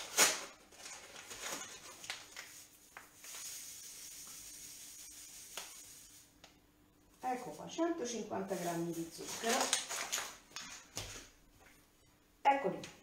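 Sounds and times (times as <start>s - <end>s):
sugar grains pouring: 2.5s - 6.3s.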